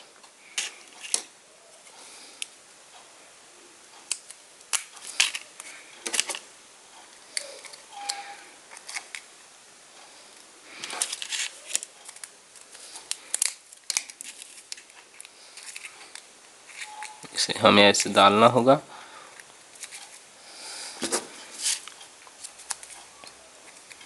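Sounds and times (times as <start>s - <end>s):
paper rustling: 10.7s - 17.0s, 21.0s - 23.1s.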